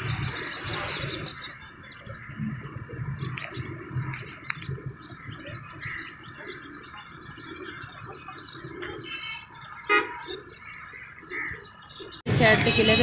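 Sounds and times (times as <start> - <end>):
bird chirps: 0.0 - 13.0.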